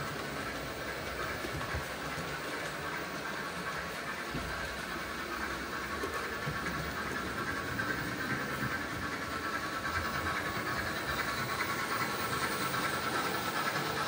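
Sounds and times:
locomotive motors whirring: 0.0 - 14.0
model train wheels rumbling on rails: 0.0 - 14.0.

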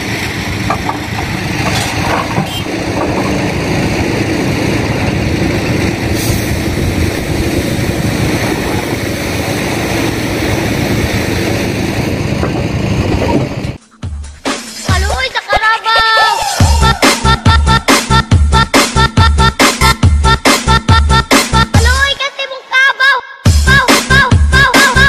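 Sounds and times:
excavator diesel engine running: 0.0 - 14.2.

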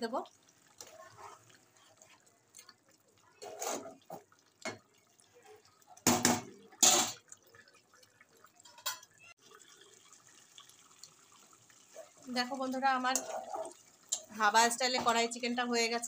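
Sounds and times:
faint liquid bubbling: 0.0 - 16.0
utensil knocking and scraping pot: 3.4 - 4.8, 13.0 - 14.3.

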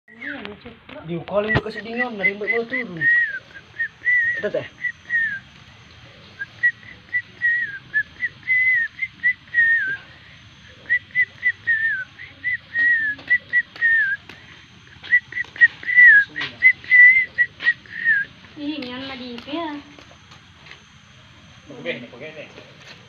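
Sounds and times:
person whistling: 2.0 - 5.4, 6.4 - 10.0, 10.9 - 14.2, 15.0 - 18.3.

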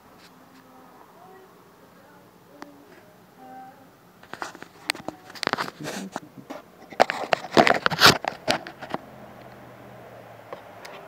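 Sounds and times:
phone handling clicks and rustles: 4.2 - 5.8, 6.5 - 9.6.

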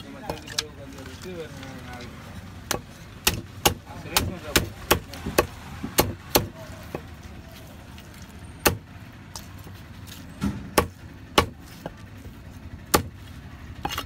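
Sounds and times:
low steady rumble: 0.0 - 14.0
knife chopping on wooden block: 2.7 - 7.1, 10.4 - 12.0, 12.9 - 13.2.

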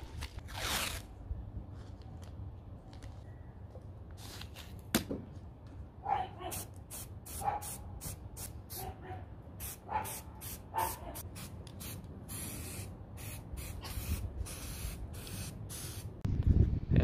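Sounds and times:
aerosol spray can spraying: 9.6 - 16.1.

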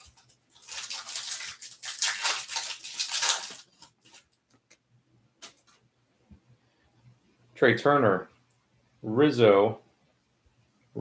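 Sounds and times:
foil wrapper crinkling and tearing: 0.0 - 4.4.

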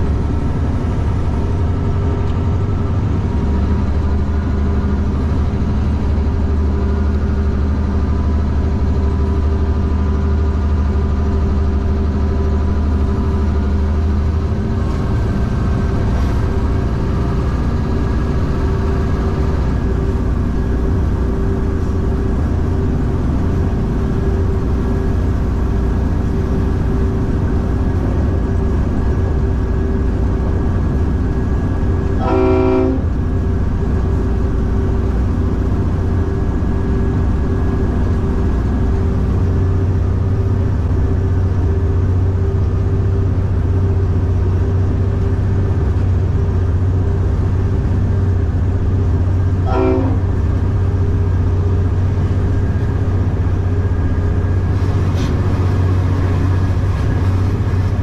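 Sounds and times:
diesel engine running: 0.0 - 58.0
locomotive horn: 32.0 - 33.3, 49.5 - 50.8.

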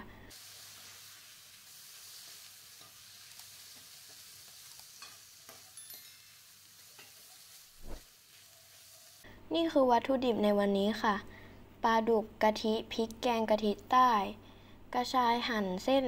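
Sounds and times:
food sizzling in a wok: 0.0 - 9.3.

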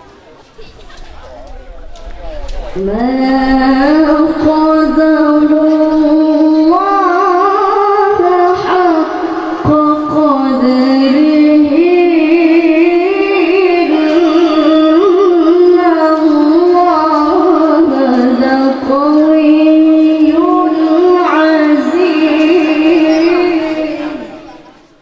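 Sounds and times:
person chanting melodically: 0.6 - 25.0.

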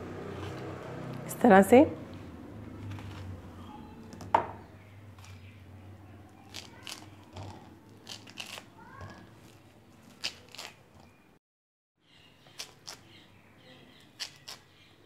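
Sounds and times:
rind tearing and crackling: 2.8 - 4.2, 6.4 - 11.2, 12.5 - 13.2, 13.9 - 14.7
knife knocking on cutting board: 4.2 - 4.6.

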